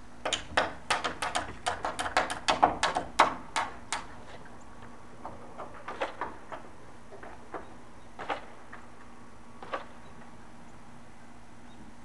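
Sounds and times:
sharp knocks and clicks: 0:00.2 - 0:09.0, 0:09.6 - 0:10.3.

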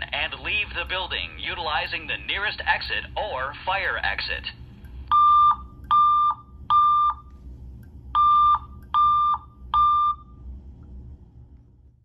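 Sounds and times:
fire alarm beeps: 0:05.1 - 0:07.3, 0:08.2 - 0:10.4.

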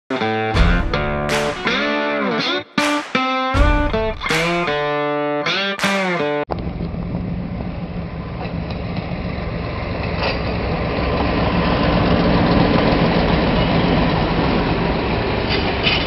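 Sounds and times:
diesel locomotive engine hum: 0:06.5 - 0:16.0
railroad cars rolling by: 0:06.5 - 0:16.0.

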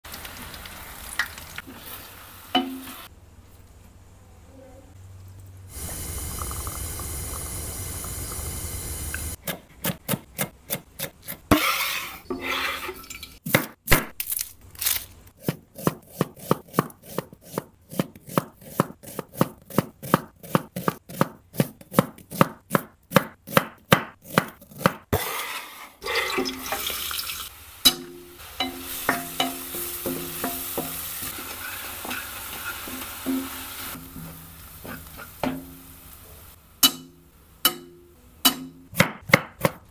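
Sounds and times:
oil hissing in a pan: 0:00.1 - 0:03.1, 0:05.7 - 0:09.4, 0:25.2 - 0:36.8
onions sizzling in oil: 0:00.1 - 0:03.1, 0:05.7 - 0:09.4, 0:25.2 - 0:37.6
wooden spoon scraping pan: 0:11.5 - 0:13.0, 0:28.9 - 0:35.6
knife chopping on cutting board: 0:15.4 - 0:25.2, 0:38.5 - 0:39.9.

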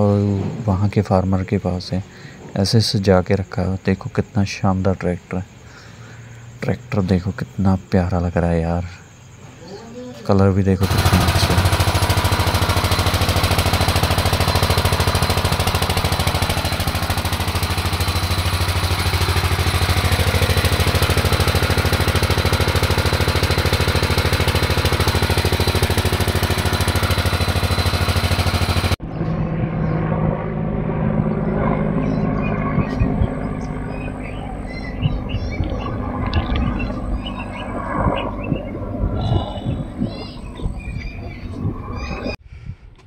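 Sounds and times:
helicopter passing overhead: 0:10.7 - 0:42.4
generator engine knocking: 0:10.8 - 0:29.0, 0:32.6 - 0:41.0.

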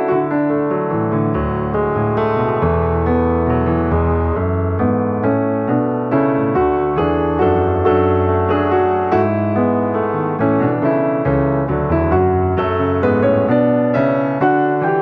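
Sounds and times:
piano music: 0:00.0 - 0:15.0.

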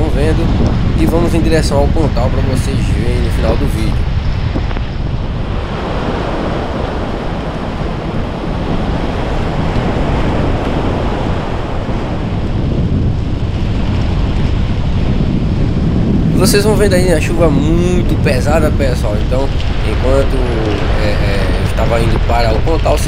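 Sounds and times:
heavy rain: 0:00.0 - 0:23.0
surf: 0:00.0 - 0:23.0
wind buffeting microphone: 0:00.0 - 0:23.0.

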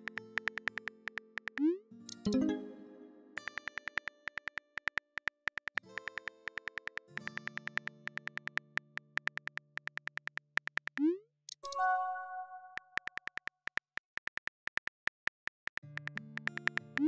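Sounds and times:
keyboard key clicks: 0:00.0 - 0:02.2, 0:03.4 - 0:11.1, 0:12.8 - 0:17.0
soft synth music: 0:00.0 - 0:04.9, 0:05.8 - 0:09.6, 0:15.8 - 0:17.0.

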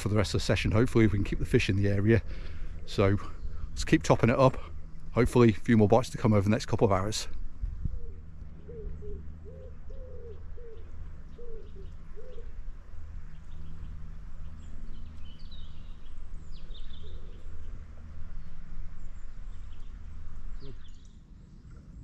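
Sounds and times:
steady low hum: 0:00.0 - 0:22.0
pigeon cooing: 0:07.9 - 0:12.6, 0:16.9 - 0:17.7
small bird chirping: 0:07.9 - 0:12.6, 0:13.2 - 0:21.8.

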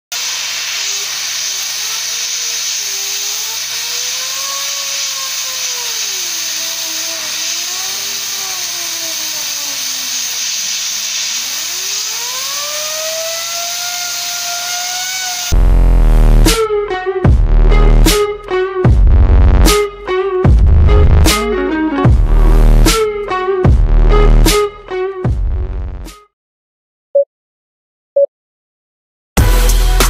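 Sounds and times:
compressed air hiss: 0:00.1 - 0:15.6
turbine wheel whine: 0:01.0 - 0:16.4.

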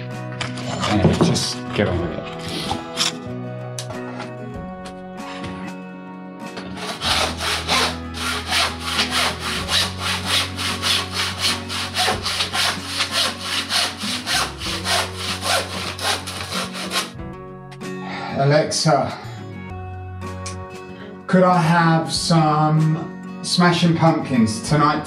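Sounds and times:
hand saw cutting wood: 0:02.4 - 0:03.2, 0:06.6 - 0:17.2.

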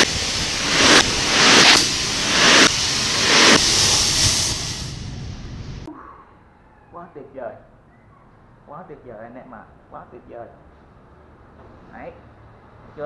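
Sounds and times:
rocket motor hissing: 0:00.0 - 0:05.9.

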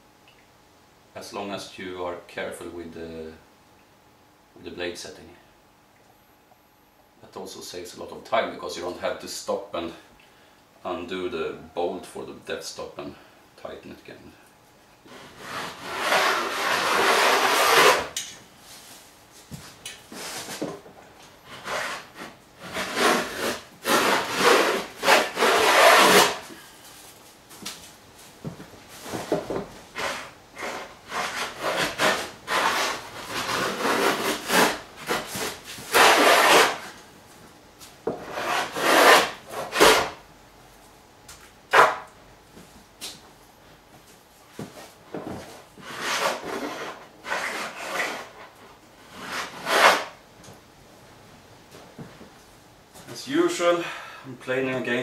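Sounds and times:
hand plane shaving wood: 0:15.1 - 0:18.2, 0:21.5 - 0:26.5, 0:30.0 - 0:37.0, 0:38.2 - 0:40.2, 0:45.8 - 0:50.2.

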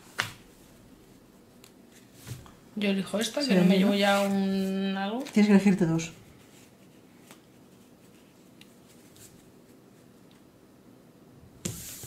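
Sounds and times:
cards rustling: 0:03.9 - 0:05.7.

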